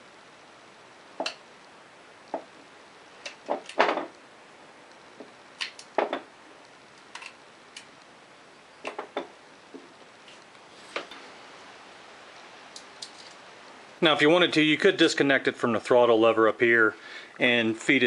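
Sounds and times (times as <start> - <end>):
small metallic clicks and knocks: 7.0 - 7.9, 12.7 - 13.4.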